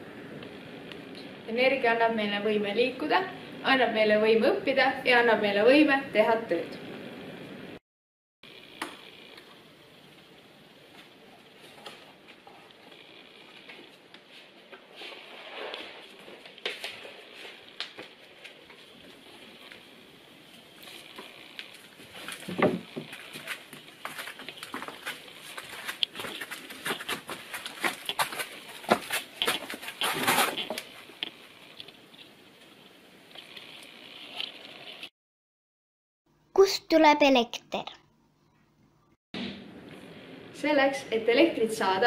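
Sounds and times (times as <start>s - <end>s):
footsteps: 20.5s - 31.3s.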